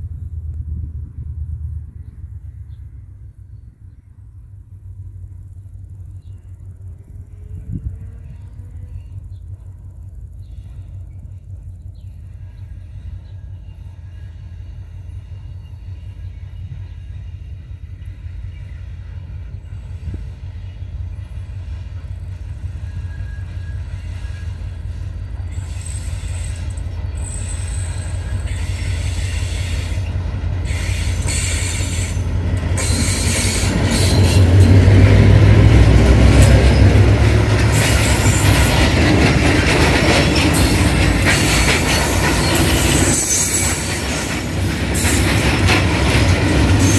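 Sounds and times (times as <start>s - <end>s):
diesel locomotive engine drone: 0.0s - 46.9s
train wheels on rails: 0.0s - 46.9s
train wheels squealing: 10.3s - 35.0s, 36.3s - 46.9s.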